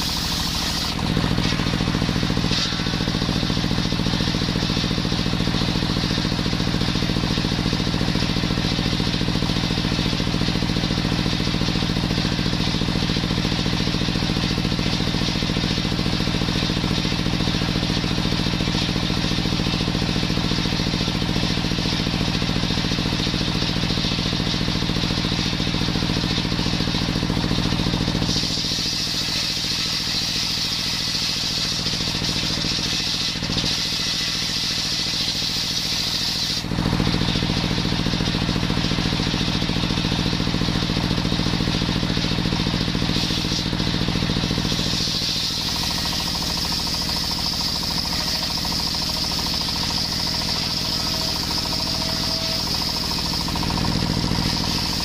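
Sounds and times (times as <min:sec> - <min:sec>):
saw blade ripping wood: 0:00.0 - 0:03.4, 0:28.2 - 0:36.7, 0:43.0 - 0:55.0
stationary engine running: 0:00.0 - 0:55.0.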